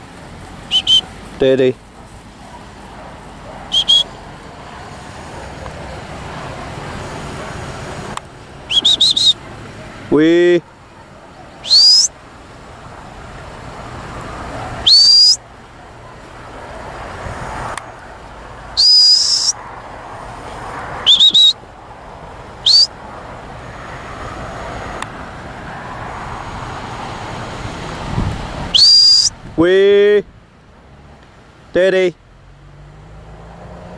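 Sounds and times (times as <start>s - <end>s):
sharp high whistles: 0.7s - 1.1s, 3.6s - 4.2s, 8.7s - 9.4s, 11.5s - 12.2s, 14.8s - 15.4s, 18.8s - 19.6s, 21.0s - 21.6s, 22.6s - 23.0s, 28.7s - 29.4s.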